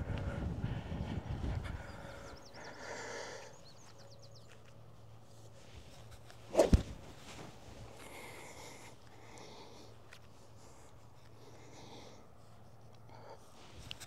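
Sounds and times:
golf club striking ball: 6.5s - 7.0s.

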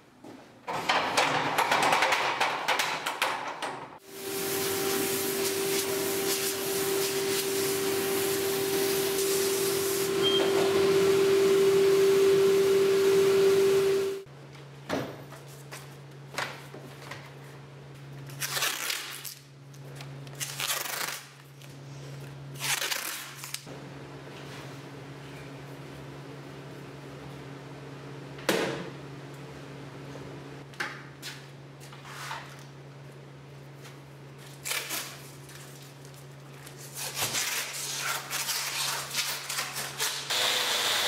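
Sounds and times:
stationary sanding machine running: 4.0s - 14.3s, 40.3s - 41.0s
orbital sander humming: 4.1s - 14.3s, 40.3s - 41.0s.

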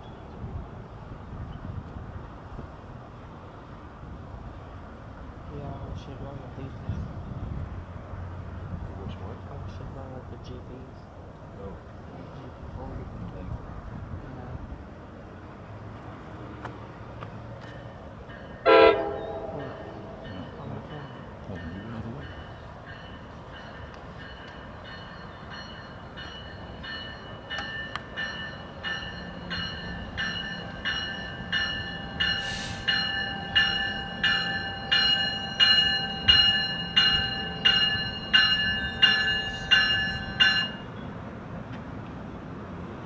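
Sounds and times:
train rumbling: 0.0s - 43.0s
train bell ringing: 17.6s - 41.0s
short hiss: 32.4s - 33.0s.

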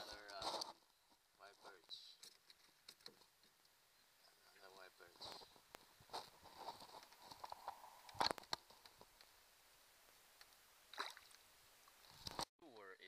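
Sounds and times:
water splash: 10.9s - 11.5s.

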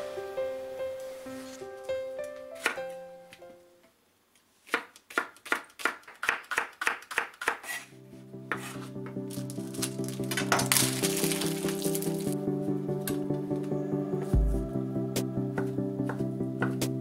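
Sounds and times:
background music: 0.0s - 3.8s, 8.0s - 17.0s
knife chopping on wooden board: 4.7s - 7.8s, 8.5s - 8.8s.

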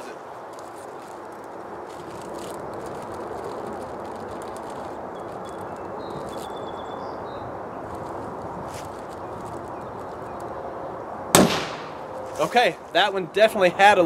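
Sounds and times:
plastic bag rustling: 0.0s - 6.9s, 7.8s - 10.6s
outdoor background noise: 0.0s - 14.0s.

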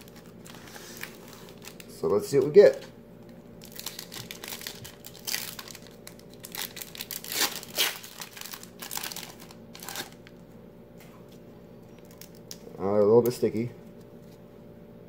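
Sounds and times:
foil wrapper crinkling and tearing: 0.0s - 2.9s, 3.6s - 10.4s, 11.9s - 12.6s.

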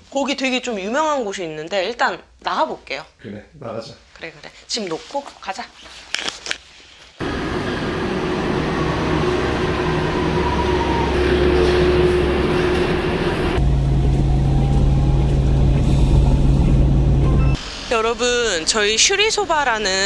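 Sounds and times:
vehicle running with rumble: 7.2s - 17.6s.

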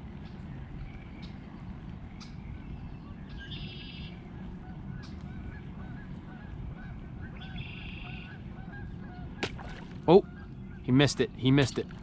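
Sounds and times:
low background noise: 0.0s - 12.0s
marsh birds calling: 0.1s - 12.0s.

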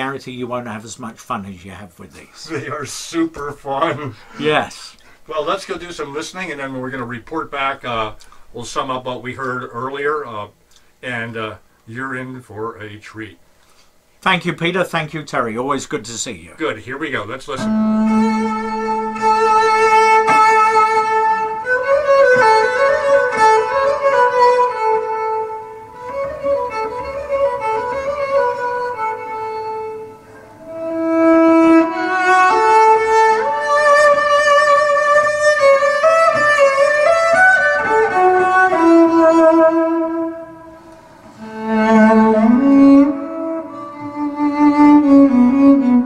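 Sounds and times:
bowed cello melody: 3.5s - 4.4s, 5.3s - 10.2s, 16.6s - 46.0s.

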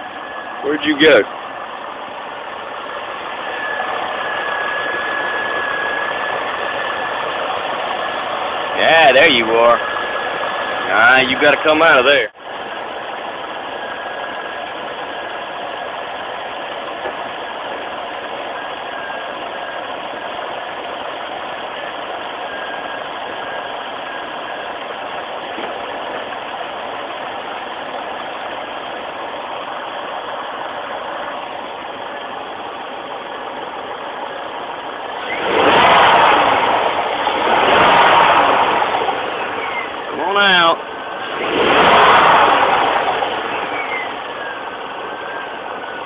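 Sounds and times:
car engine idling: 0.0s - 46.0s
loud noise: 35.1s - 46.0s.

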